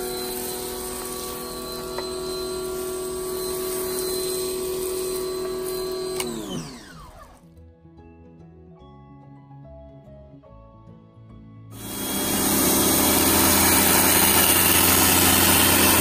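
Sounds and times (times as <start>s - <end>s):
spray jet hissing: 0.0s - 6.5s, 11.8s - 16.0s
pressure washer motor whine: 0.0s - 7.5s, 11.8s - 16.0s.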